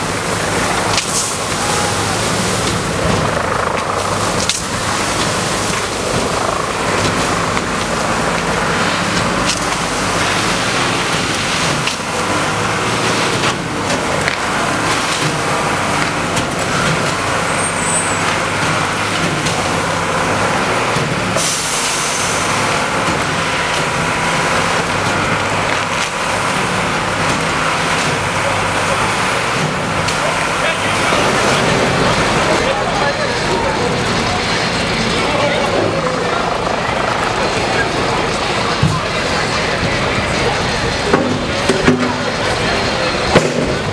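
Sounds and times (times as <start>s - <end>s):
truck engine and pump drone: 0.0s - 43.9s
rush of water jet: 19.4s - 32.6s.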